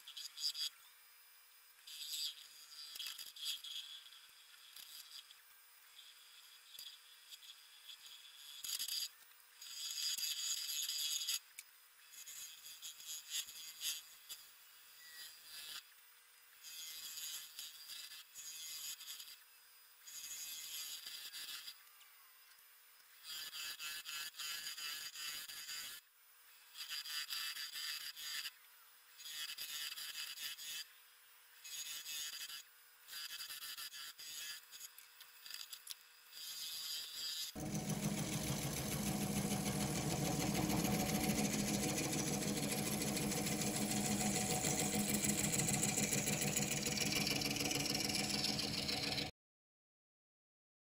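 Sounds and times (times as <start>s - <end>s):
faint lathe motor tone: 37.6s - 49.3s
lathe tool shaving wood: 37.6s - 49.3s.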